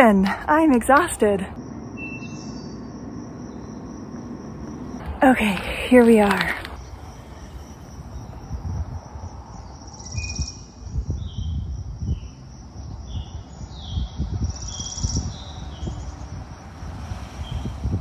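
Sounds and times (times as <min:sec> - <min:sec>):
small birds chirping: 0:01.0 - 0:16.5
low rumble: 0:01.5 - 0:10.0.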